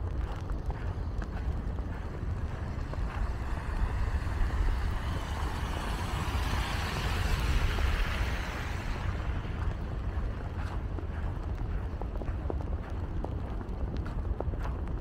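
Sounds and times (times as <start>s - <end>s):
steady low rumble: 0.0s - 15.0s
car tyres hissing on wet road: 2.6s - 9.6s.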